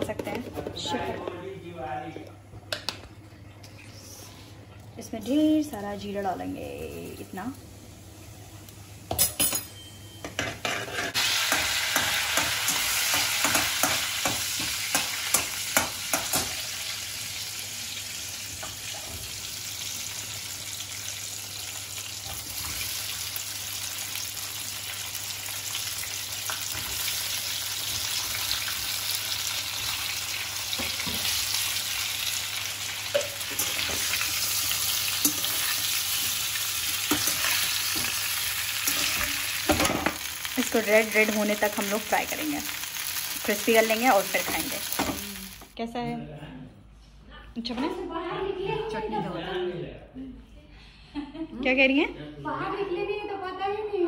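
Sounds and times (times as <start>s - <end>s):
steel spatula scraping a pan: 10.4s - 11.6s
hot oil sizzling in a frying pan: 10.6s - 45.8s.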